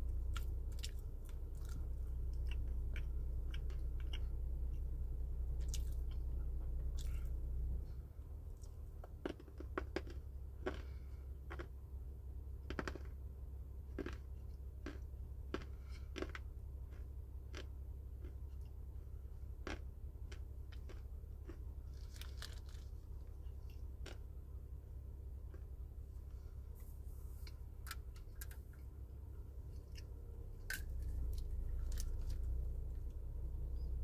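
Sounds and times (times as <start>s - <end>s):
chewing dry clay crunches: 0.1s - 4.9s, 5.5s - 7.4s, 8.4s - 11.8s, 12.6s - 13.2s, 13.9s - 24.4s, 25.4s - 25.8s, 29.7s - 33.2s.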